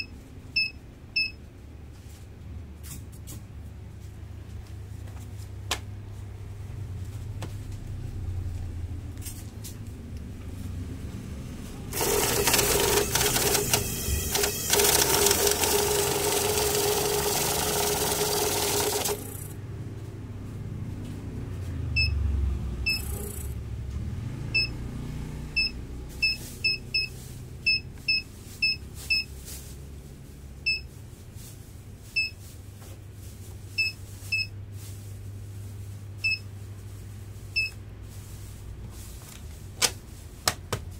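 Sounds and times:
short electronic beeps: 0.0s - 1.4s, 12.8s - 15.2s, 22.0s - 22.2s, 22.8s - 23.6s, 25.6s - 29.3s, 30.7s - 30.9s
banknote counter whirring: 11.9s - 19.6s.

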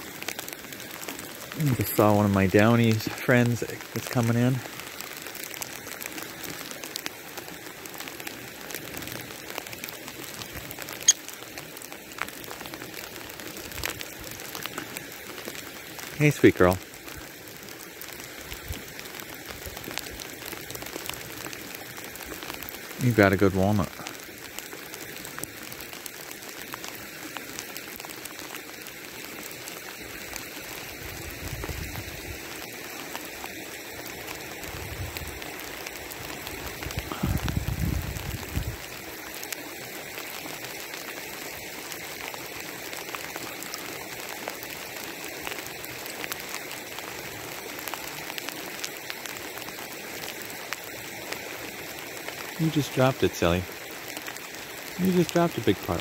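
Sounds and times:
hiss of water: 0.0s - 56.0s.

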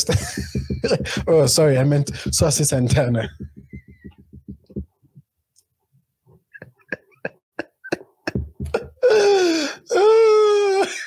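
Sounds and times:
man laughing hard: 6.6s - 9.5s.

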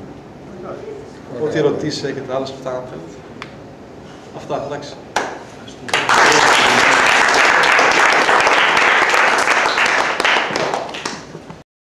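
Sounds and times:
small audience applauding: 5.2s - 11.4s.

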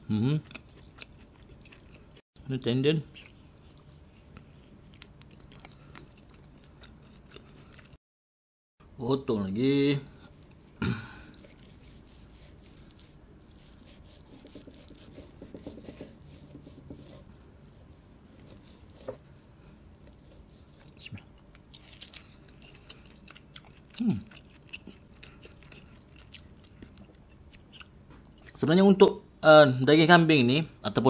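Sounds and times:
knife sawing through roast meat: 11.2s - 20.9s.

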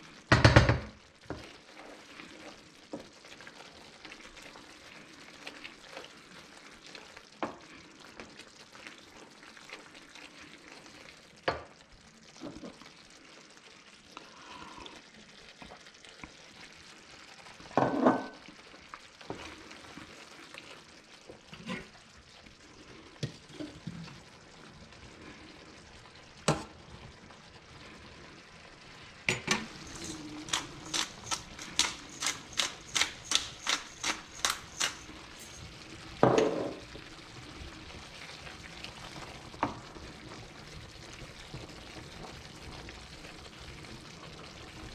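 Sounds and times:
sauce simmering in a pan: 0.0s - 44.9s
wooden spoon stirring: 1.2s - 7.5s, 29.5s - 37.1s
spice grinder clicking: 29.7s - 35.1s.

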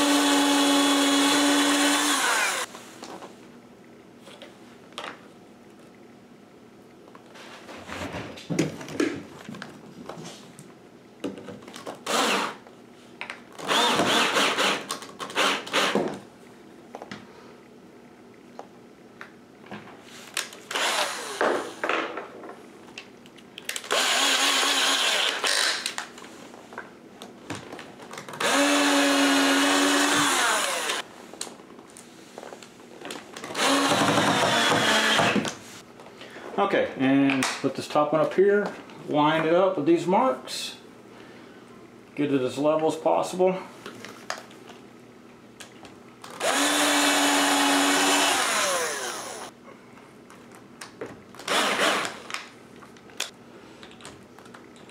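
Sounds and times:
power drill running: 0.0s - 2.7s, 12.0s - 12.6s, 13.6s - 16.0s, 20.7s - 21.5s, 23.9s - 25.7s, 28.4s - 31.0s, 33.6s - 35.4s, 46.3s - 49.5s, 51.5s - 52.2s.

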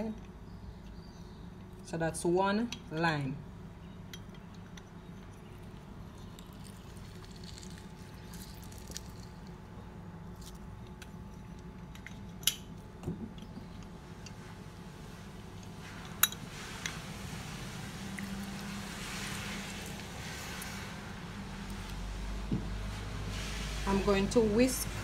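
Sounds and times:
juice dripping: 4.3s - 11.7s, 16.8s - 22.9s
lime squishing: 6.0s - 9.6s.

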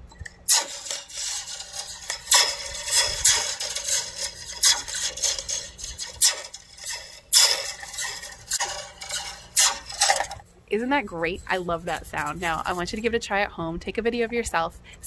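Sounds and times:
slinky ringing zaps: 0.4s - 10.4s.

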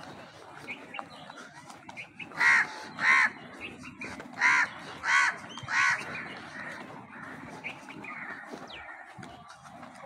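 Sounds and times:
crow cawing: 2.3s - 3.4s, 4.4s - 9.0s.

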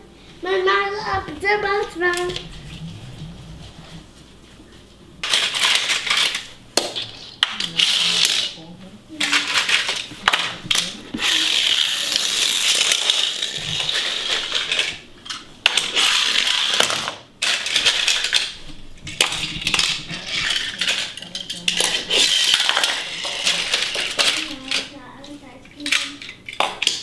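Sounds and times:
toy car wheels whirring on floor: 5.2s - 8.6s, 9.2s - 25.0s
metal toy cars clinking: 9.2s - 10.1s, 10.7s - 18.6s, 19.2s - 25.0s, 25.8s - 27.0s.

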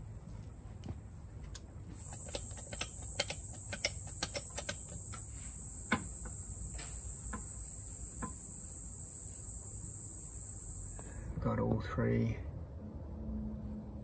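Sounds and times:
tool clicks and taps: 1.5s - 5.3s
high-pitched insect buzz: 2.0s - 11.3s.

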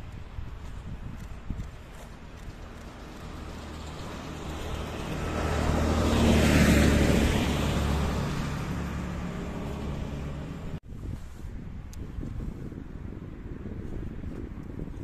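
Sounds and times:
diesel rail vehicle passing: 2.0s - 10.8s.

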